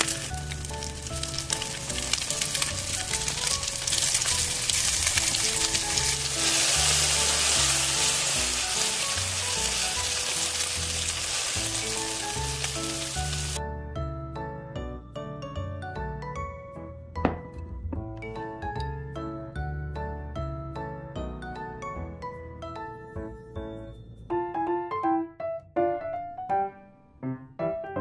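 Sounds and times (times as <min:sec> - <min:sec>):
fish sizzling in hot oil: 0:00.0 - 0:13.6.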